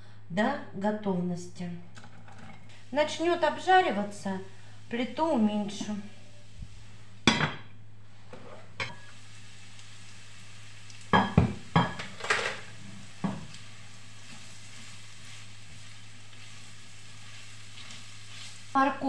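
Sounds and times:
faint sizzle: 0.0 - 19.0
spatula stirring in pan: 13.0 - 18.9.

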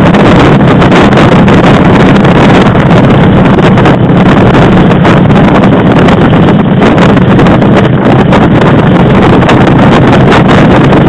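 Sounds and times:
motorcycle running: 0.0 - 11.0
wind buffeting microphone: 0.0 - 11.0.

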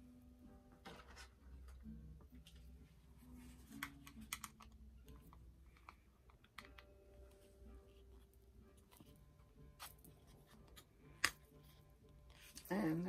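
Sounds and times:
plastic pieces clicking: 3.8 - 4.8.

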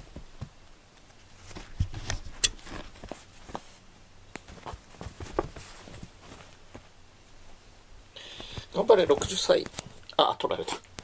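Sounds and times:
cat scrabbling on a mat: 4.4 - 6.9.

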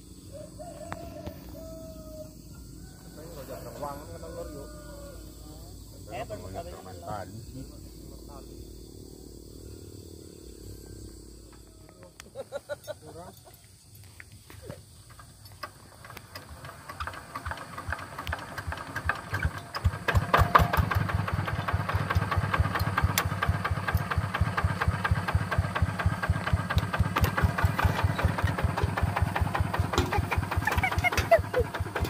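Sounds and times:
diesel engine chugging: 15.0 - 32.0.

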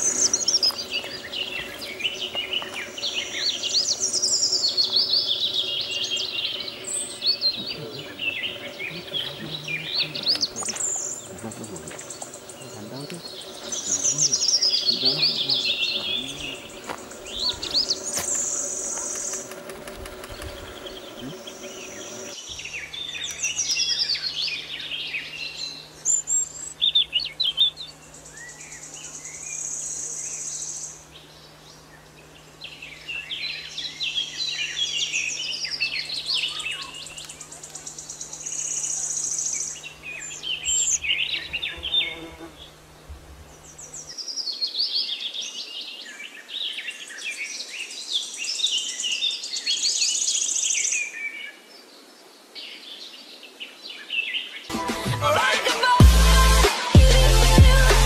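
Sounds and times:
high thin buzzing trill: 0.0 - 24.1
faint low hum: 0.0 - 44.2
small birds chirping and twittering: 0.0 - 54.7.

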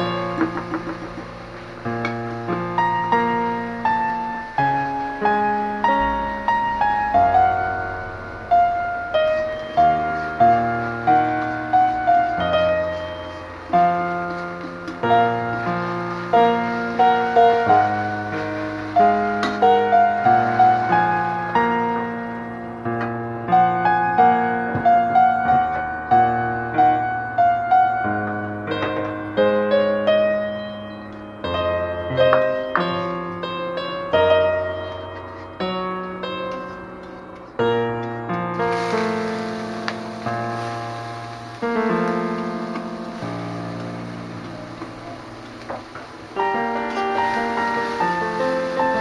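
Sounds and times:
slow piano melody: 0.0 - 49.0.

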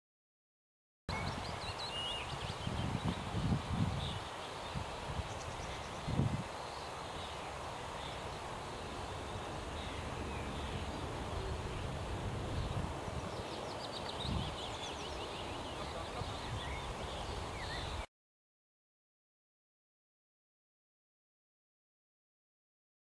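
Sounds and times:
small birds chirping: 1.1 - 18.1.

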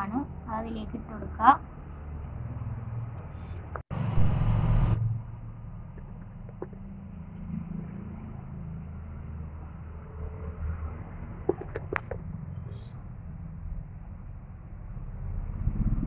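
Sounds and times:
low rumble: 13.5 - 16.0.

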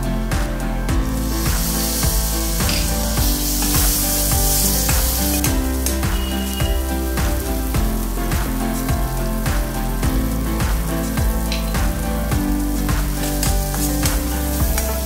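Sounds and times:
background music with beat: 0.0 - 15.0
food sizzling in hot oil: 1.0 - 15.0.

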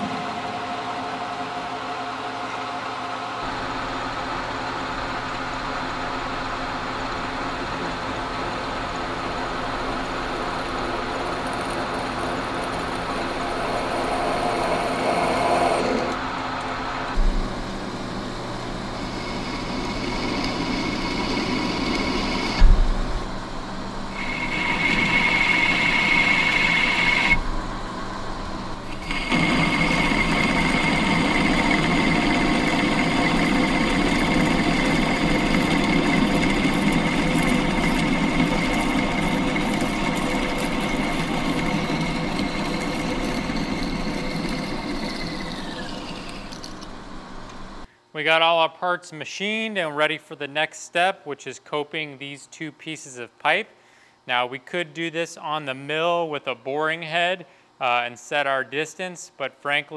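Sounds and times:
metal lathe drilling: 8.6 - 16.2, 18.0 - 22.6, 24.2 - 27.4, 28.8 - 47.1
steady whine: 9.1 - 48.6.

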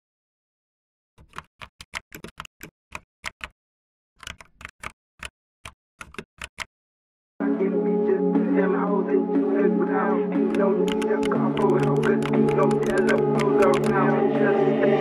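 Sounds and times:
keyboard typing clicks: 1.2 - 3.6, 4.2 - 6.7, 10.5 - 14.0.

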